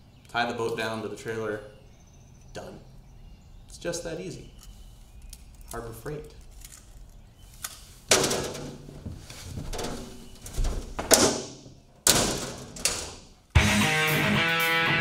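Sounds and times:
cabinet door shutting and latching: 0:08.1 - 0:13.4.

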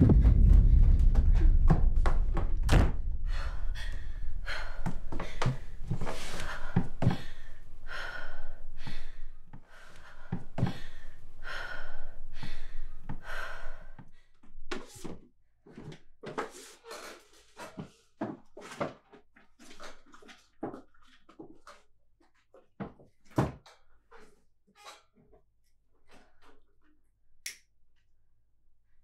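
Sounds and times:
dull thuds: 0:00.0 - 0:07.3
low hum: 0:00.0 - 0:09.4
person breathing heavily: 0:03.0 - 0:14.4.

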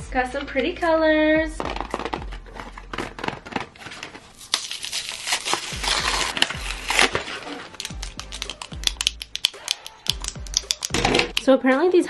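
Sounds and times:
plastic blister pack tearing: 0:02.8 - 0:11.0
plastic crinkling with sharp snaps: 0:02.8 - 0:11.5.

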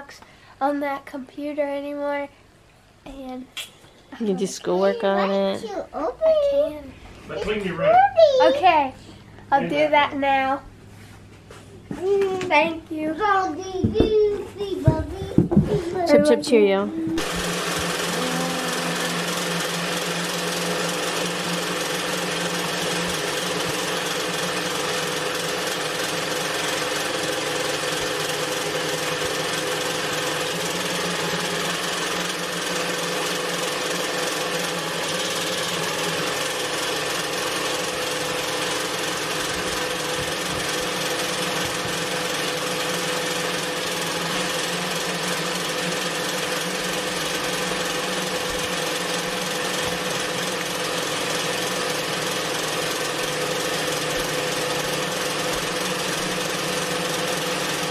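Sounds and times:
embroidery machine stitching: 0:17.2 - 0:57.9.

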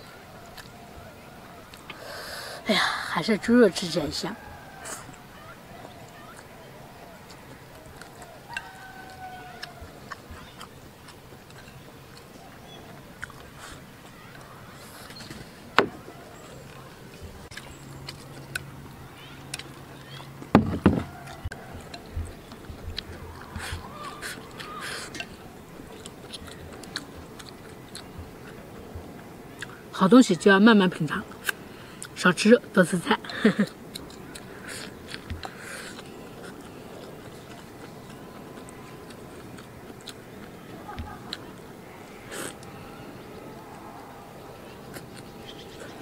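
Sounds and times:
chewing: 0:00.0 - 0:02.2, 0:03.8 - 0:29.9, 0:31.2 - 0:32.2, 0:33.2 - 0:46.0
noisy slurps: 0:33.6 - 0:46.0.

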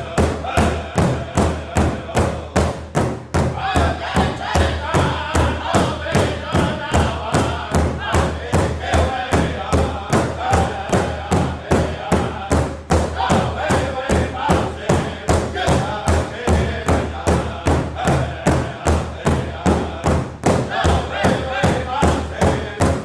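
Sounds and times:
large drum beating: 0:00.0 - 0:23.0
men singing: 0:00.0 - 0:23.0.

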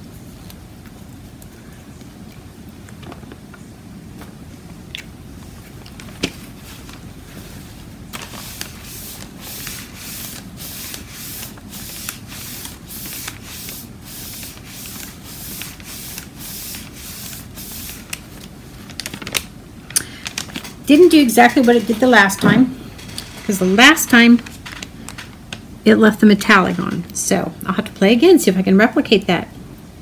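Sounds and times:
paper towel swishing on paper: 0:06.4 - 0:18.5.

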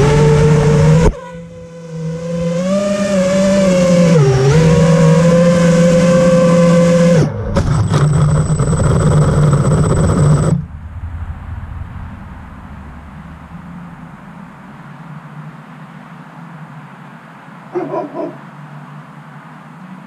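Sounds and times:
quadcopter motors whining: 0:00.0 - 0:10.7.

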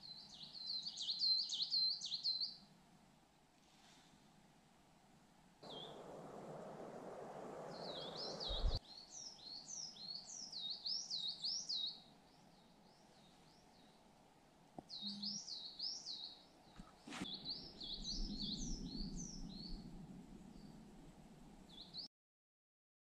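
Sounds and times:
songbird singing: 0:00.0 - 0:02.6, 0:05.6 - 0:14.1, 0:14.8 - 0:22.1
steady rushing noise: 0:05.6 - 0:08.8.

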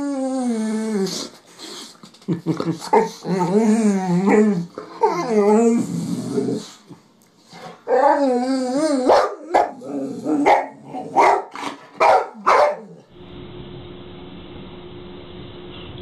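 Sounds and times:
dog whining: 0:00.0 - 0:01.3, 0:02.9 - 0:06.8, 0:07.9 - 0:11.4
dog barking: 0:09.1 - 0:09.8, 0:10.4 - 0:13.0.

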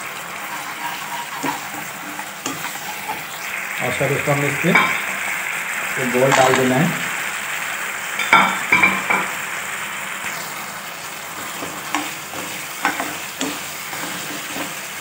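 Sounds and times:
sauce sizzling in a pan: 0:00.0 - 0:15.0
utensils knocking against pan: 0:04.6 - 0:05.1, 0:08.2 - 0:09.3, 0:11.5 - 0:14.7.

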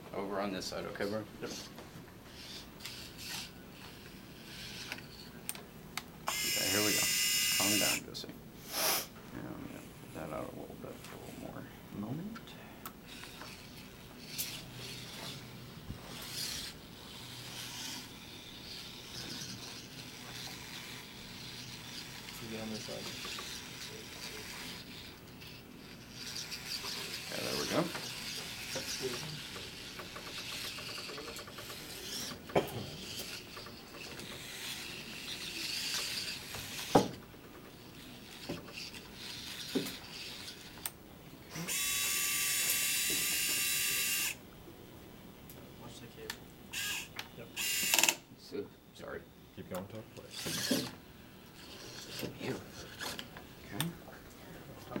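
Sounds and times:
servos whirring: 0:02.3 - 0:08.0, 0:13.0 - 0:44.4, 0:46.7 - 0:48.2, 0:49.0 - 0:54.0.

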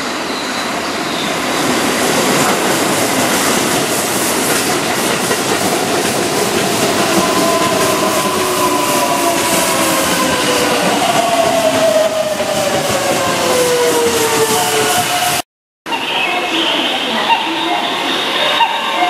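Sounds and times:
electric train passing: 0:00.0 - 0:19.0
wheels clacking over rail joints: 0:02.4 - 0:14.4.

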